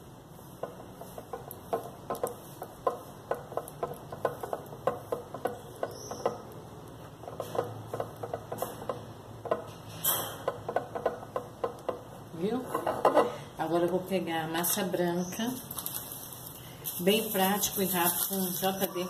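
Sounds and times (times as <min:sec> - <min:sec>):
fingernails tapping on glass jar: 0:00.6 - 0:12.1.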